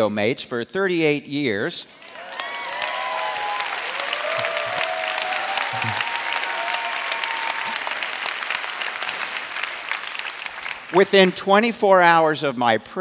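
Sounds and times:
voices cheering: 2.0s - 11.0s
audience applauding: 2.0s - 11.4s.

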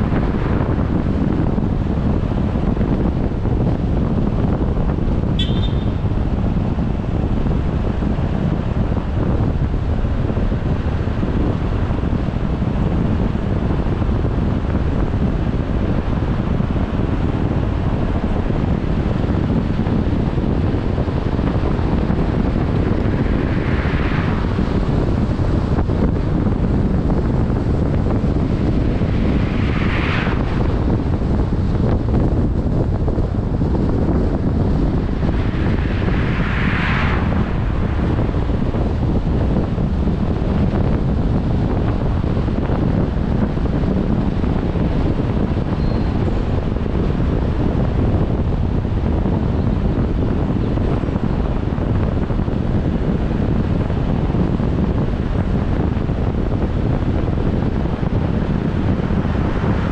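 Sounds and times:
wind buffeting microphone: 0.0s - 59.9s
vehicles passing: 20.2s - 40.8s.

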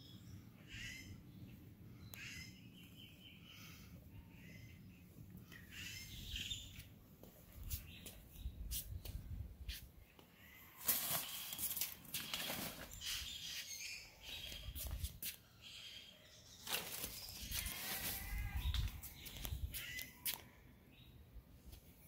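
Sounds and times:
birds chirping: 0.0s - 21.2s.

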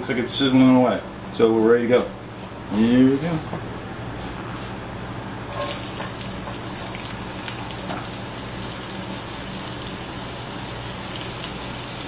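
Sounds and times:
vegetables sizzling in oil: 5.5s - 12.0s.

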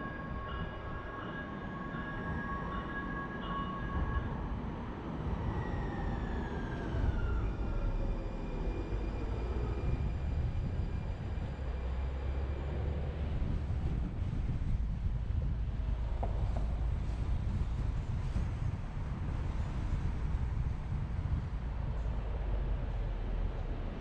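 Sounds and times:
car road rumble: 9.8s - 24.0s.

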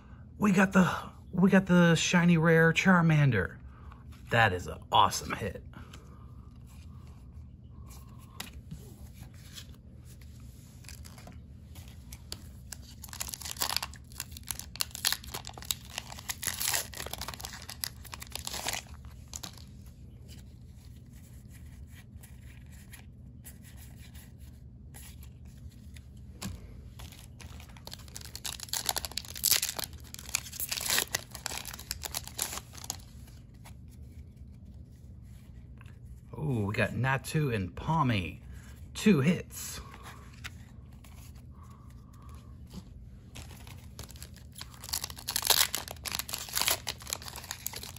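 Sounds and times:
cards being handled: 5.1s - 36.2s, 39.8s - 47.9s
foil wrappers tearing and crinkling: 12.3s - 19.7s, 27.0s - 33.1s, 43.4s - 47.9s.

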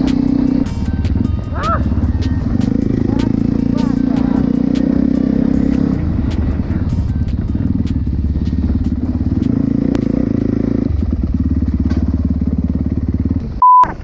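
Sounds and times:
dirt bike engine revving: 0.0s - 13.5s.

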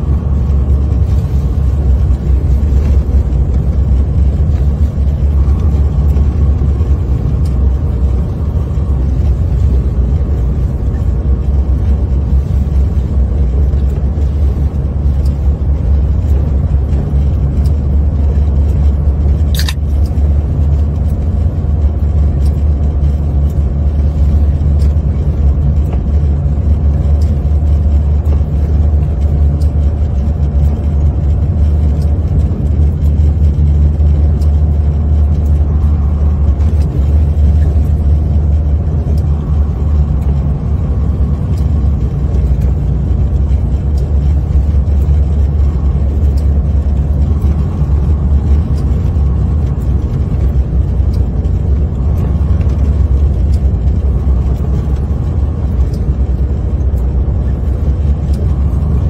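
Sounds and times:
truck engine and tires droning: 0.0s - 59.0s
sharp click: 19.5s - 20.0s.

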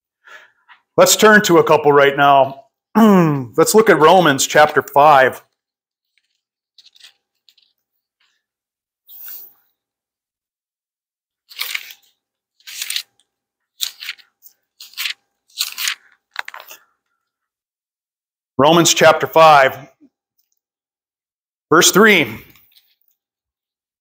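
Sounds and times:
book pages rustling: 6.0s - 8.5s, 11.4s - 17.3s.

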